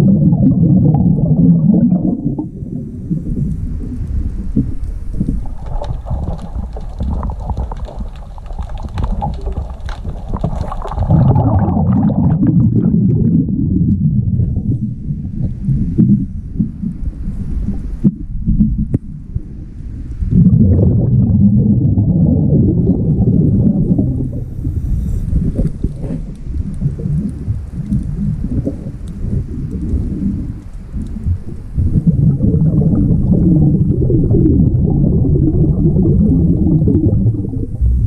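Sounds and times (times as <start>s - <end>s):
regulator exhalation bubbles: 0.0s - 16.8s, 20.3s - 30.6s, 31.2s - 38.0s
underwater breathing noise: 24.1s - 26.3s.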